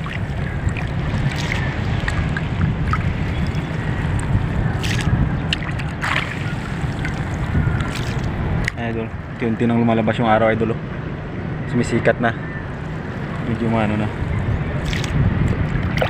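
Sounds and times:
water splashing and dripping: 0:00.0 - 0:08.8, 0:14.8 - 0:16.0
wind rumble on microphone: 0:00.0 - 0:16.0.

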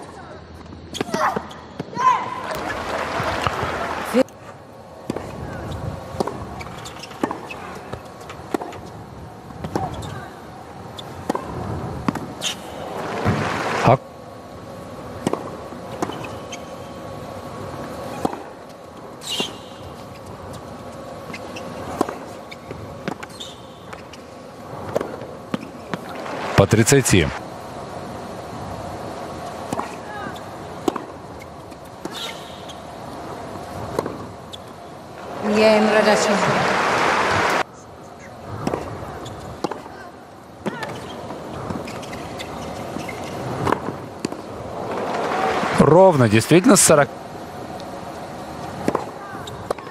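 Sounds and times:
crowd and stadium noise: 0:00.0 - 0:49.9
tennis ball bouncing on court: 0:06.1 - 0:08.9, 0:09.6 - 0:10.1, 0:11.0 - 0:12.5, 0:15.2 - 0:16.6, 0:21.3 - 0:24.2, 0:24.8 - 0:26.4, 0:29.6 - 0:30.0, 0:30.8 - 0:32.4, 0:33.8 - 0:35.6, 0:38.6 - 0:40.0, 0:40.6 - 0:44.5, 0:48.8 - 0:49.9
shoe squeak: 0:06.5 - 0:07.9, 0:09.8 - 0:10.3, 0:16.1 - 0:16.9, 0:19.2 - 0:20.3, 0:21.0 - 0:24.4, 0:32.1 - 0:32.9, 0:34.5 - 0:34.8, 0:39.1 - 0:39.6, 0:40.7 - 0:43.6.

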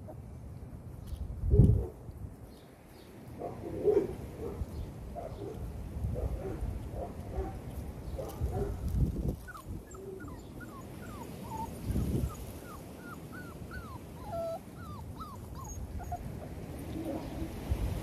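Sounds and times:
wind buffeting microphone: 0:01.1 - 0:02.4, 0:05.7 - 0:18.0
puppies whimpering and yipping: 0:09.3 - 0:17.6.

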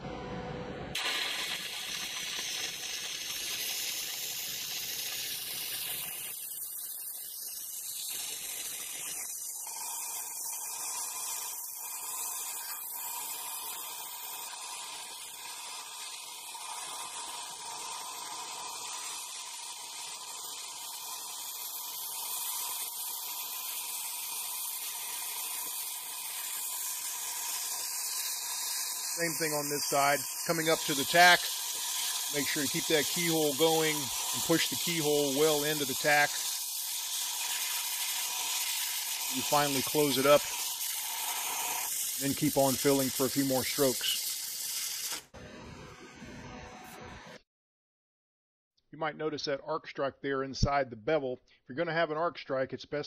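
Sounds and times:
welding arc hissing: 0:00.9 - 0:47.2.

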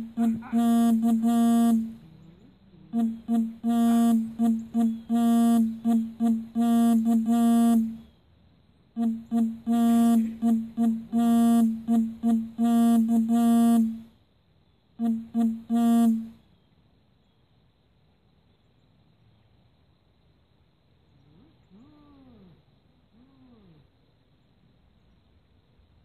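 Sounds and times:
repeated single-pitched tone: 0:00.0 - 0:02.0, 0:03.0 - 0:08.0, 0:09.0 - 0:14.0, 0:15.0 - 0:16.4.

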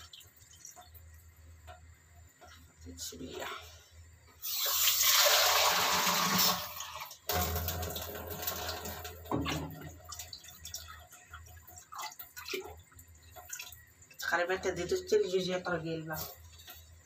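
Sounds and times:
water pouring into soup: 0:04.4 - 0:14.2.

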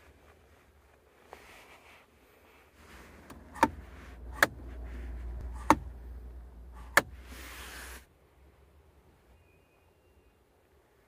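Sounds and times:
low handling rumble: 0:02.8 - 0:07.7.

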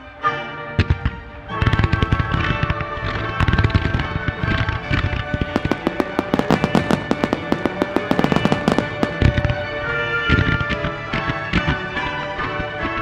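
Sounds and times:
fireworks cracking: 0:05.4 - 0:09.9
heavy low firework boom: 0:05.6 - 0:09.7.

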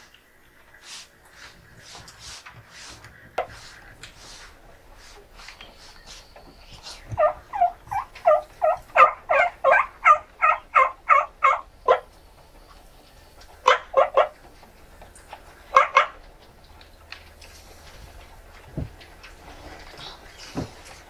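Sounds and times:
turkey yelping: 0:05.9 - 0:16.6.

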